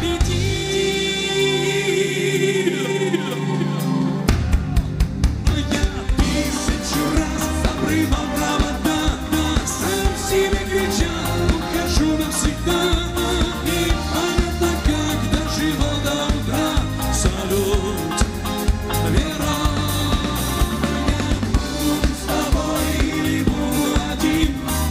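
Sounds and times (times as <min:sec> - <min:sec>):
man singing: 0:00.0 - 0:04.3, 0:05.4 - 0:24.9
live pop-rock band: 0:00.0 - 0:24.9.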